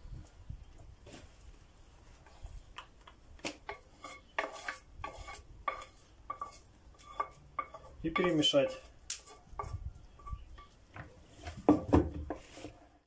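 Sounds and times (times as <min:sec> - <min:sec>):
wooden spatula scraping pan: 0:03.6 - 0:13.0.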